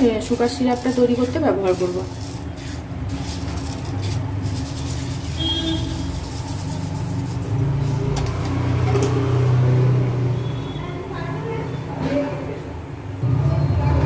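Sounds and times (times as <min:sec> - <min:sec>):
sugar rattling into a pan: 0:00.0 - 0:09.1.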